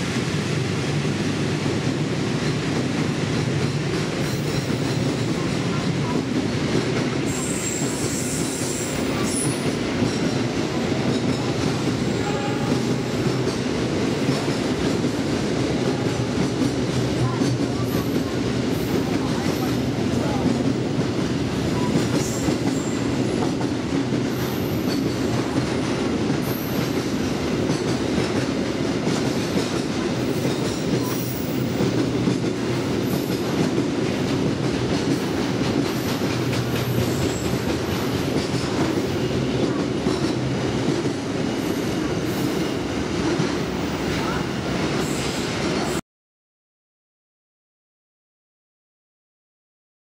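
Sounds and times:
freight train rumbling past: 0:00.0 - 0:46.0.

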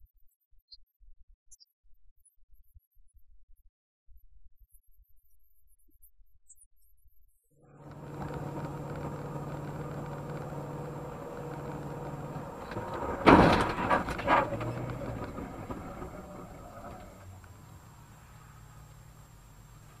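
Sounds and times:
road and engine noise: 0:07.6 - 0:20.0
loud car crash: 0:07.7 - 0:18.1
bangs: 0:07.8 - 0:17.7.

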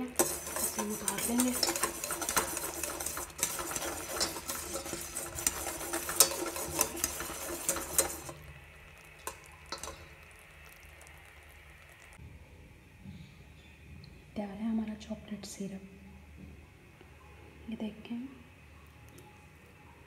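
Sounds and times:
whisk clicking against saucepan: 0:00.0 - 0:08.4, 0:09.2 - 0:10.2
boiling syrup sizzling: 0:00.0 - 0:12.2.

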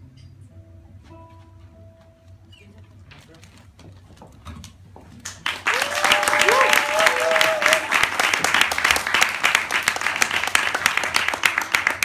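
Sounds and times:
audience applauding: 0:05.2 - 0:12.0
crowd cheering: 0:05.4 - 0:12.0.

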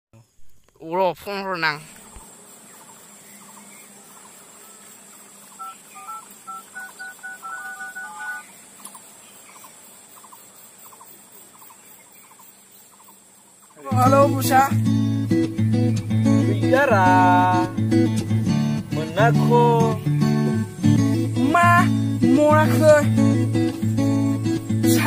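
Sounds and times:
phone keypad beeps: 0:05.6 - 0:08.4.

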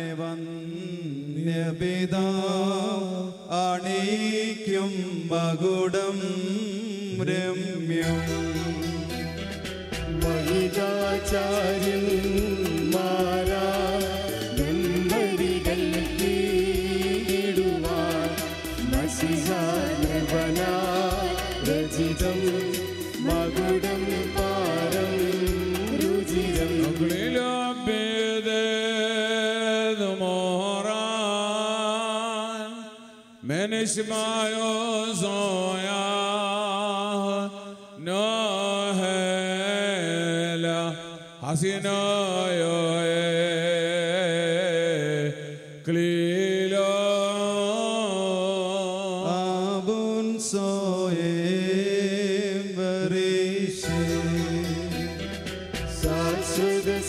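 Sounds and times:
man chanting: 0:00.0 - 0:09.2, 0:10.2 - 0:55.1, 0:55.9 - 0:57.0
music with a beat: 0:08.0 - 0:27.4, 0:53.8 - 0:57.0.

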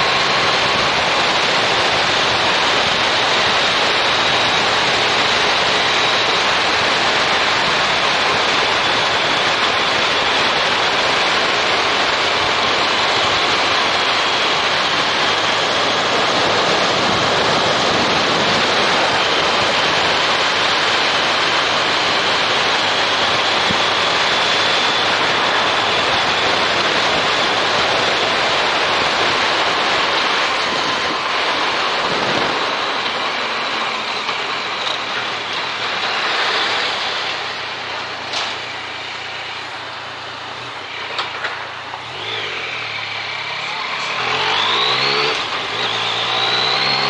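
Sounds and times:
wind rushing over microphone: 0:00.0 - 0:33.2
motorcycle engine running: 0:00.0 - 0:47.0.

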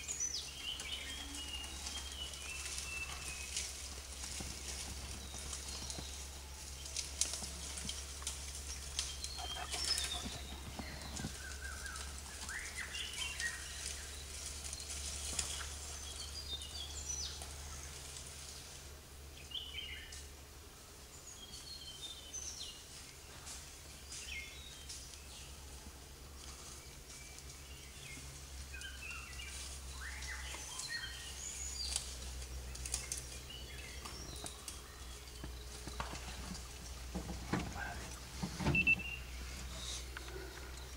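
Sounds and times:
birds chirping and whistling: 0:00.0 - 0:03.8, 0:07.6 - 0:17.4, 0:27.1 - 0:36.6, 0:37.5 - 0:40.9.

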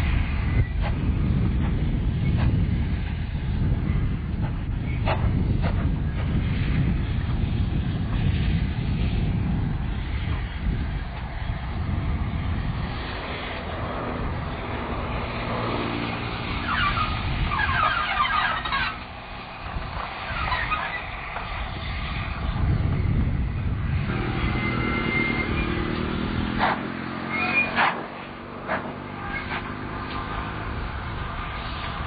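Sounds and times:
steam train rumbling past: 0:18.2 - 0:32.0.

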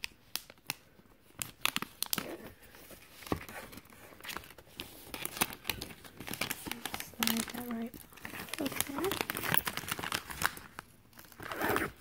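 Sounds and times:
plastic wrap crinkling and tearing: 0:00.0 - 0:12.0
plastic wrap snapping: 0:05.2 - 0:12.0.

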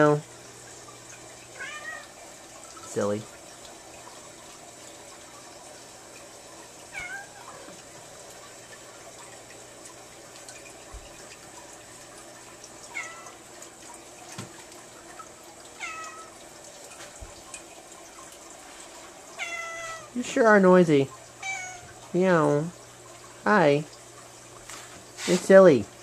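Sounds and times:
running water: 0:00.0 - 0:26.0
cat meowing: 0:01.6 - 0:02.1, 0:06.9 - 0:07.6, 0:12.9 - 0:13.3, 0:15.8 - 0:16.3, 0:19.4 - 0:20.1, 0:21.4 - 0:21.9.

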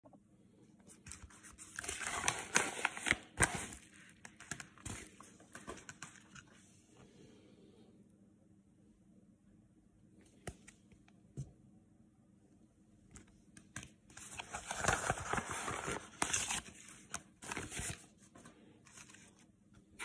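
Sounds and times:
padded mailer crinkling and tearing: 0:01.1 - 0:06.4, 0:14.1 - 0:18.2.

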